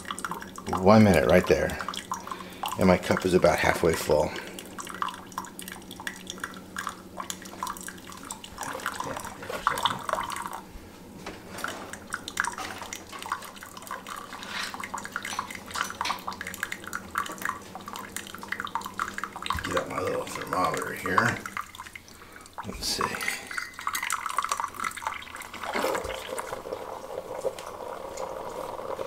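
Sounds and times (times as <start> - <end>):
water splashing into mug: 11.5 - 29.0.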